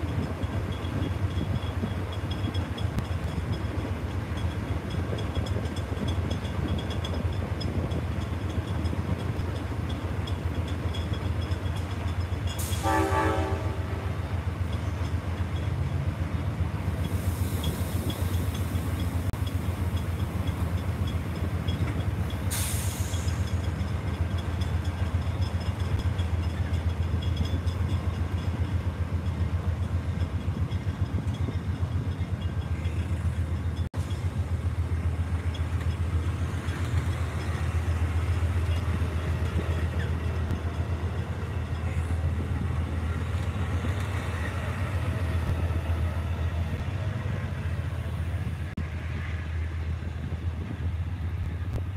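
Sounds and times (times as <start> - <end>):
train rumbling: 0.0 - 51.9
train horn blast: 12.7 - 14.2.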